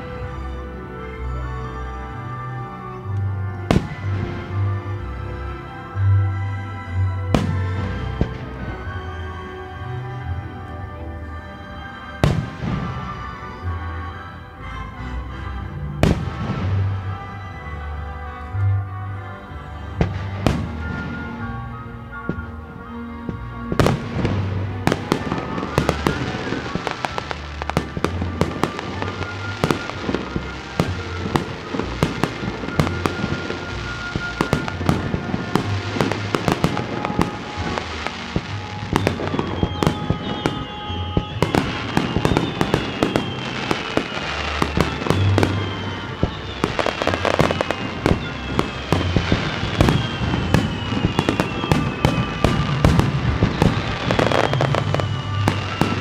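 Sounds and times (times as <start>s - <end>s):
music playing: 0.0s - 56.0s
fireworks bangs and crackles: 3.5s - 5.1s, 7.3s - 9.4s, 11.9s - 13.7s, 16.0s - 17.7s, 19.9s - 56.0s.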